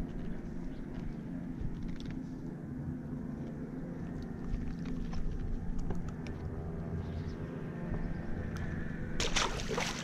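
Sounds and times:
steady low hum: 0.0 - 10.0
fish splashing into water: 9.2 - 10.0.

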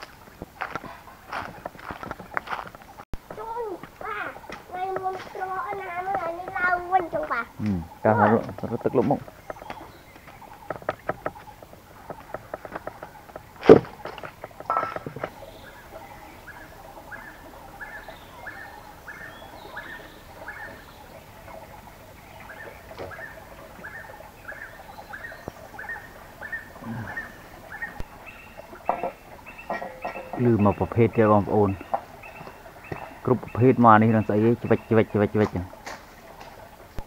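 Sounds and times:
clicks and knocks: 28.9 - 30.5.

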